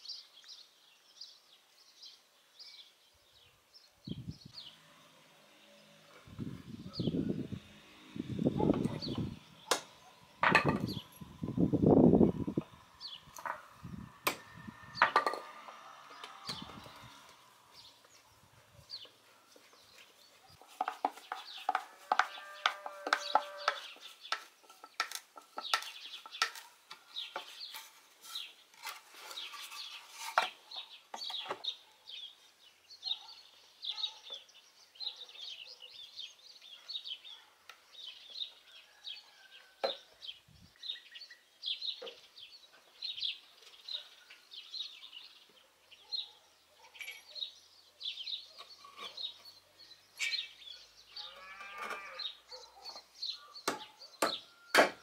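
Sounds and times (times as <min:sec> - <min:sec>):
birds chirping: 0:00.0 - 0:55.0
wooden boards knocking: 0:09.7 - 0:11.0, 0:53.7 - 0:55.0.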